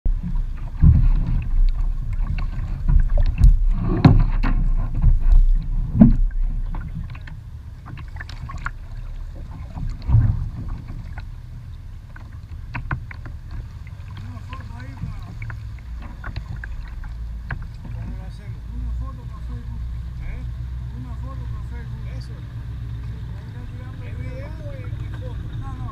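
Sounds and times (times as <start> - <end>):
low rumble: 0.0 - 25.9
knocks and scrapes on kayak hull: 0.1 - 20.4
paddling: 0.1 - 25.9
thump: 0.8 - 1.4, 2.9 - 6.3, 10.0 - 10.9.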